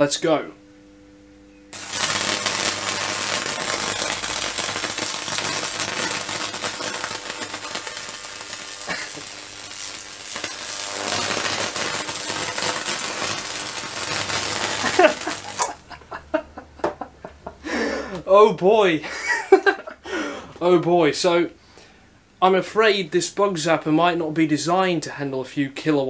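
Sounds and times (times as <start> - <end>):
mains hum: 0.0 - 26.0
electric arc crackling buzz: 1.7 - 16.4
transformer hum: 1.8 - 16.0.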